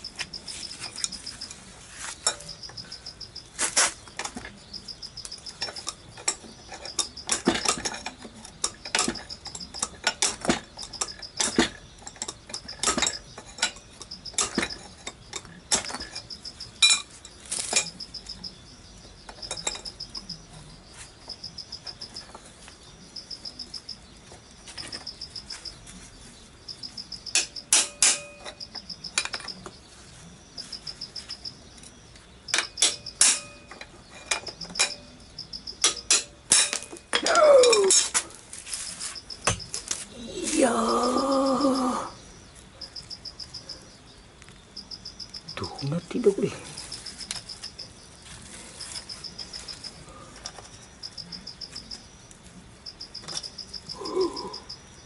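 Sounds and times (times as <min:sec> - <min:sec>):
insects chirping: 0:00.0 - 0:55.0
metal tools clinking on engine: 0:05.4 - 0:18.0, 0:27.3 - 0:29.6, 0:32.5 - 0:35.2, 0:35.8 - 0:38.6.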